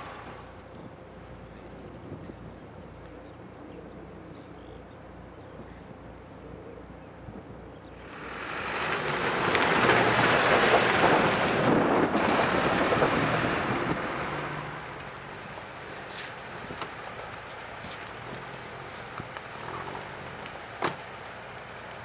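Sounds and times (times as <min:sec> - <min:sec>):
truck driving past: 0:07.9 - 0:21.8.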